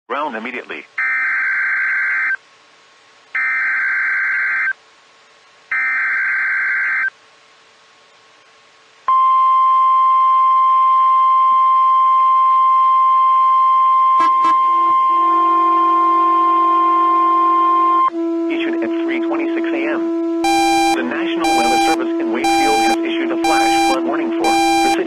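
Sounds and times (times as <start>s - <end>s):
steady high alarm tone: 9.1s - 25.0s
buzzing digital data bursts: 16.6s - 25.0s.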